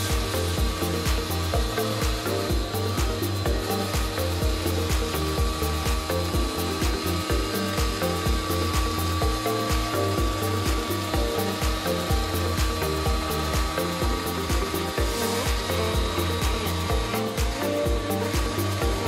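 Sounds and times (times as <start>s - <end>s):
background music with steady beat: 0.0s - 19.0s
router spindle whining: 0.0s - 19.0s.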